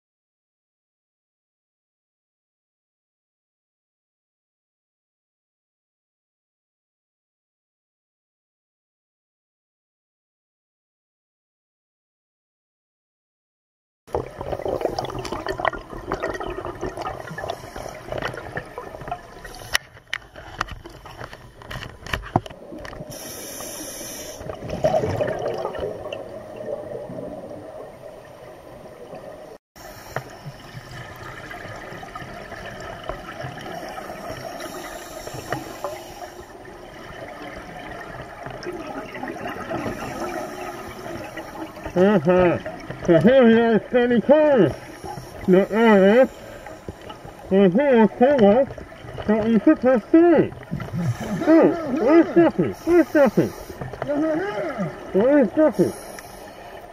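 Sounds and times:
underwater breathing bubbles: 0:14.1 - 0:56.9.

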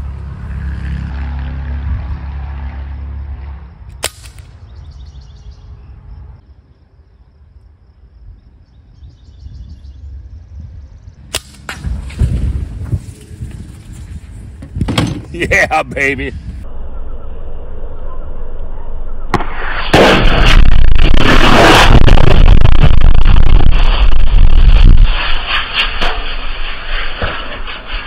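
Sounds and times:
air rifle shots: 0:04.0 - 0:04.5
low rumble: 0:16.4 - 0:25.8.

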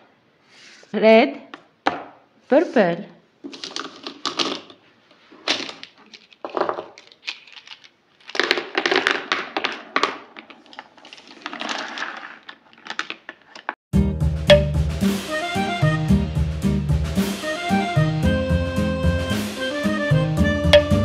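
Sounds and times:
plastic markers clicking and clattering: 0:03.5 - 0:04.8, 0:05.4 - 0:13.8.

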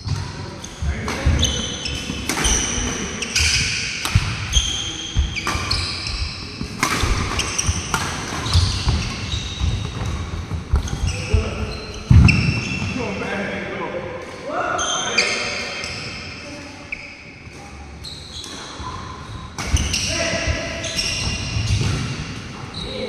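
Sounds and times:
rackets hitting shuttlecock: 0:00.1 - 0:11.1, 0:19.6 - 0:22.4
shoes squeaking on wooden floor: 0:04.4 - 0:13.1, 0:18.0 - 0:23.0.

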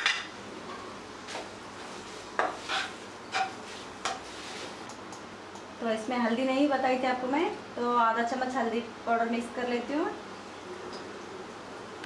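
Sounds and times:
spatula scraping a pan: 0:01.3 - 0:04.8.

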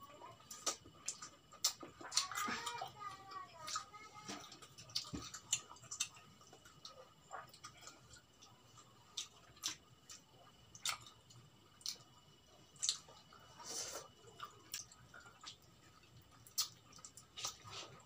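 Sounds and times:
soft chewing: 0:00.1 - 0:18.0.

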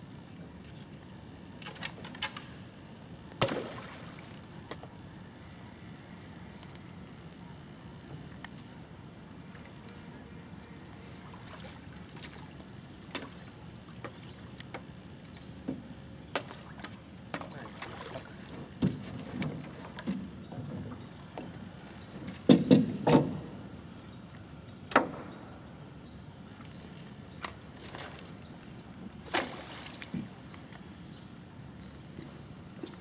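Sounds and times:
water sloshing and splashing: 0:03.4 - 0:04.7, 0:11.0 - 0:15.6, 0:16.3 - 0:23.6, 0:26.6 - 0:30.8
decoys clunking against metal boat: 0:14.0 - 0:23.7, 0:29.2 - 0:30.6.

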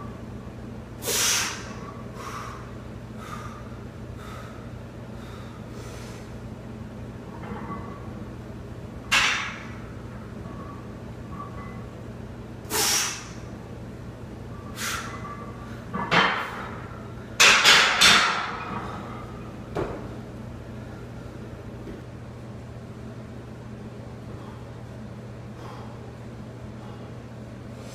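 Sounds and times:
steady low hum: 0:00.0 - 0:27.9
sharp heavy breaths: 0:01.0 - 0:06.4.

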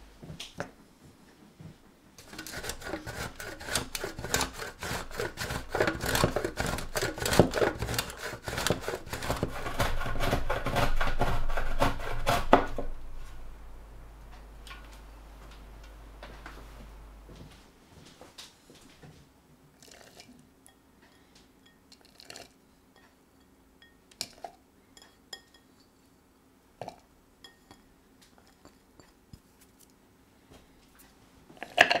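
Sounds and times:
cheese grating on metal grater: 0:02.2 - 0:12.8.

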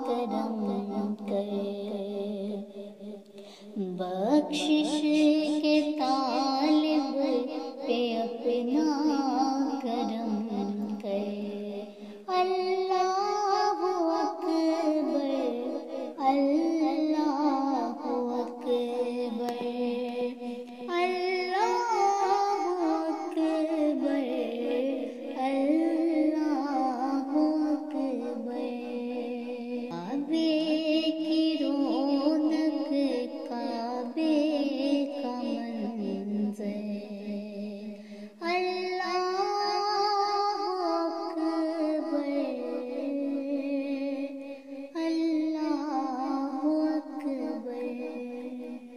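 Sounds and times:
person singing devotional song: 0:00.0 - 0:48.9.

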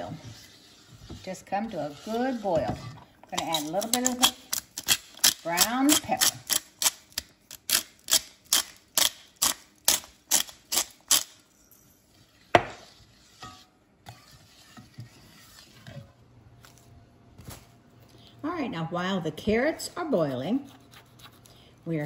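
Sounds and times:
spatula scraping in pot: 0:00.0 - 0:04.4, 0:12.1 - 0:16.2.

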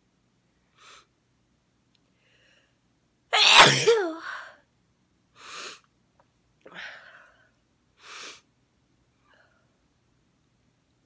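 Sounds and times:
woman sneezing: 0:03.4 - 0:04.4.

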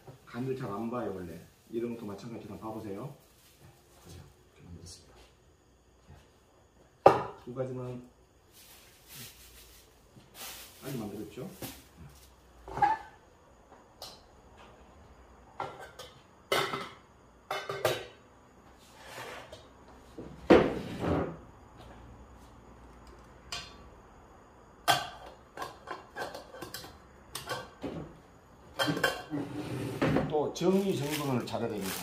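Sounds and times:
dishes clattering on wooden table: 0:12.6 - 0:13.2, 0:15.6 - 0:18.2, 0:28.7 - 0:30.3.

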